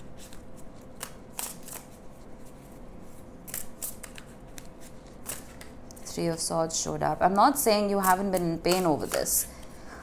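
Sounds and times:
cards sliding and snapping: 0:00.2 - 0:02.0, 0:03.5 - 0:05.7.

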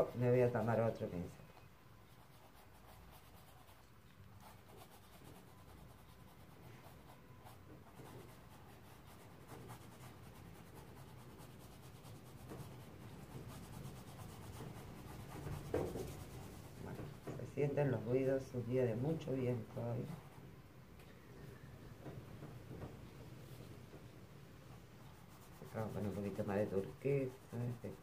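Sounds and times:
paintbrush rubbing on canvas: 0:08.0 - 0:17.2, 0:24.9 - 0:28.0.

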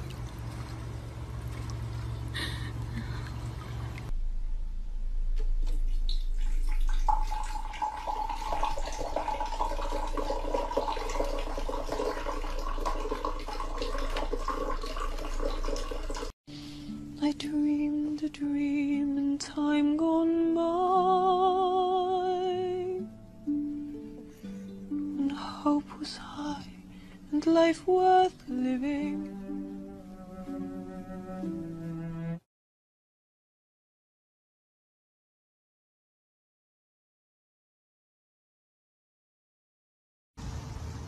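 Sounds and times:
bird splashing in water: 0:00.0 - 0:02.8
water pouring into a glass: 0:05.9 - 0:16.3
music with wavering held notes: 0:20.0 - 0:32.4.

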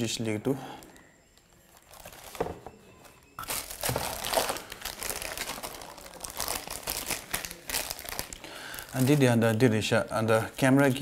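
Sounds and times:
plastic bag crinkling: 0:01.4 - 0:02.6, 0:03.4 - 0:10.2.

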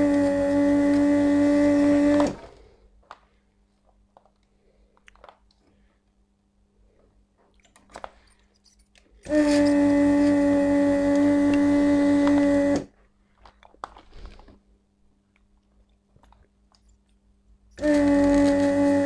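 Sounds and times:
vacuum pump humming: 0:00.0 - 0:02.8, 0:09.2 - 0:12.9, 0:17.8 - 0:19.0.

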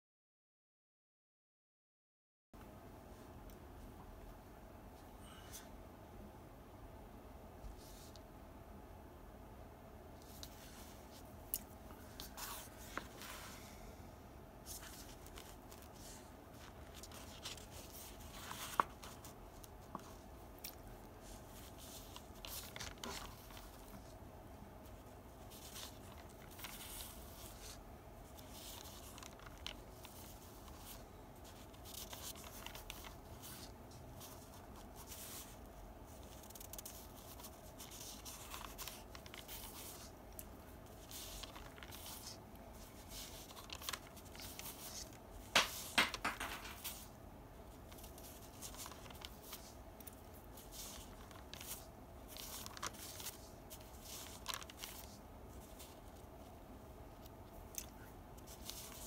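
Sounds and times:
paper handling: 0:14.7 - 0:24.1, 0:24.8 - 0:47.1, 0:47.8 - 0:56.5, 0:57.1 - 0:59.0.

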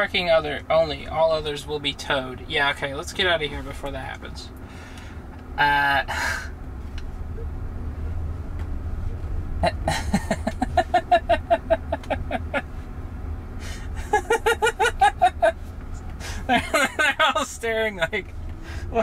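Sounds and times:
car cabin road rumble: 0:00.0 - 0:19.0
person laughing: 0:09.6 - 0:12.8, 0:13.6 - 0:15.6, 0:16.2 - 0:17.4.

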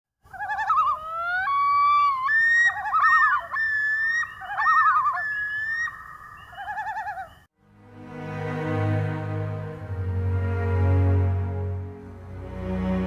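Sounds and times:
loon tremolo calls: 0:00.2 - 0:07.5
loon wailing calls: 0:00.3 - 0:07.4.

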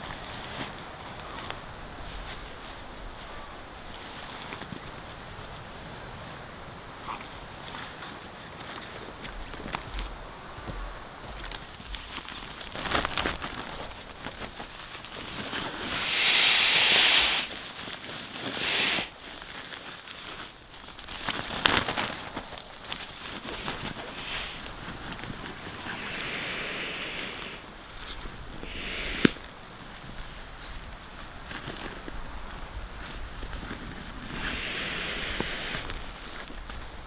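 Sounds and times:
nylon crinkling and rustling: 0:09.3 - 0:16.0, 0:17.4 - 0:26.0, 0:29.4 - 0:34.4
air rushing hiss: 0:15.8 - 0:17.5, 0:18.4 - 0:19.2, 0:25.8 - 0:27.6, 0:28.6 - 0:29.5, 0:34.3 - 0:35.9.

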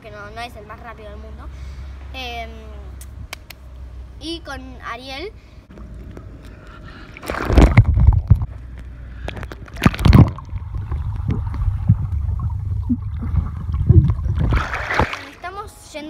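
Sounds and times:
underwater rumbling and gurgling: 0:05.7 - 0:15.2
splash into water: 0:07.1 - 0:08.5, 0:09.2 - 0:15.4
rush of water: 0:09.2 - 0:15.4.

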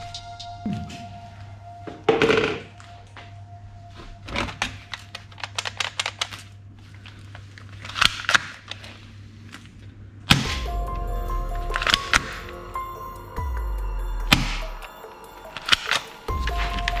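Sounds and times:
plastic toys clattering: 0:04.3 - 0:09.8.

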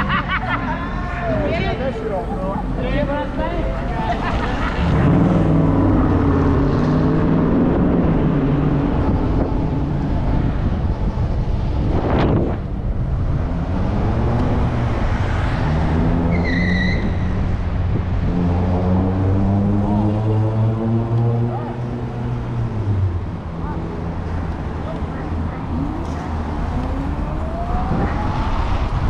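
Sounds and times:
low hum of vehicles: 0:00.0 - 0:29.0
wind and road noise: 0:00.0 - 0:29.0.

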